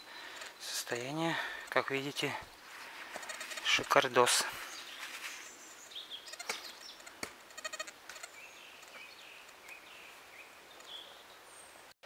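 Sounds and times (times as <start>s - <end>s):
sharp clicks: 6.4s - 9.8s.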